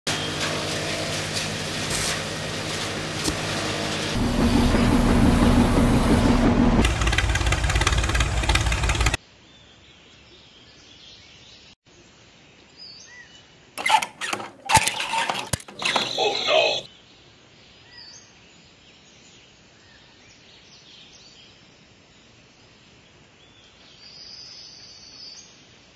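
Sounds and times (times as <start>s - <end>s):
small electric motors humming: 0.1s - 9.2s, 13.8s - 16.9s
rhythmic rattle: 4.1s - 9.2s
model hand pump clacks: 6.8s - 9.2s, 13.8s - 16.5s.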